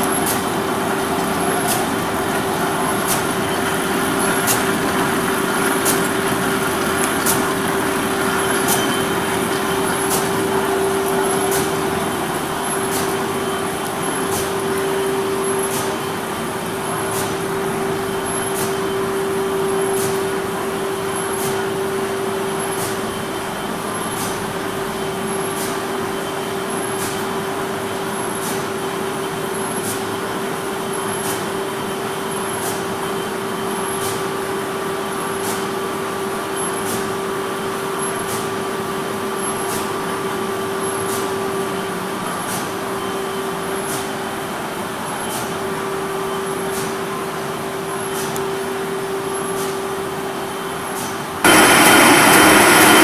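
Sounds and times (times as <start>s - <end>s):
machine humming: 0.0s - 22.6s, 51.4s - 53.0s
steady machine tone: 0.0s - 27.0s, 51.4s - 53.0s.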